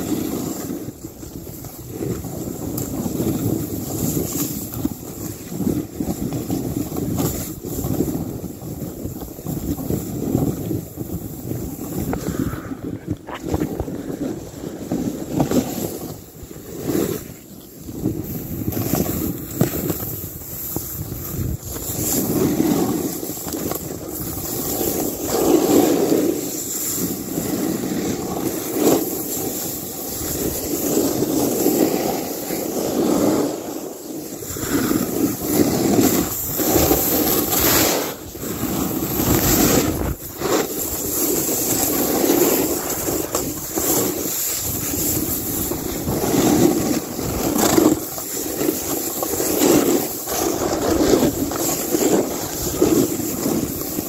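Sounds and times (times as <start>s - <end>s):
snowboard scraping through snow: 0.0s - 54.0s
wind buffeting microphone: 0.9s - 16.8s, 34.3s - 54.0s.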